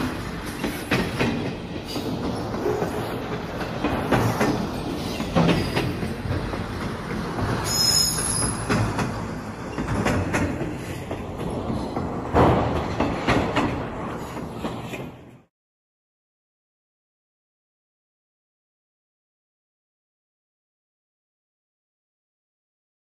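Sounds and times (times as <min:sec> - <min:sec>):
train rumble: 0:00.0 - 0:15.5
wheels knocking over rail joints: 0:00.0 - 0:15.5
train wheel squeal: 0:04.2 - 0:06.3, 0:07.5 - 0:10.1.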